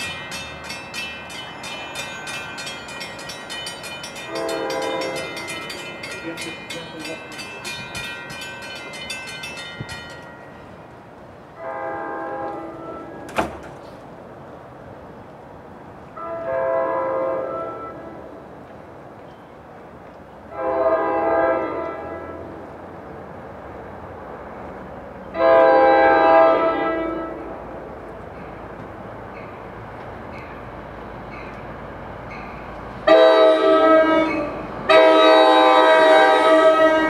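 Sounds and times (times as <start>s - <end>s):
train air horn blasts: 4.3s - 5.4s, 11.6s - 13.3s, 16.2s - 18.3s, 20.5s - 22.5s, 25.4s - 27.5s, 33.0s - 37.0s.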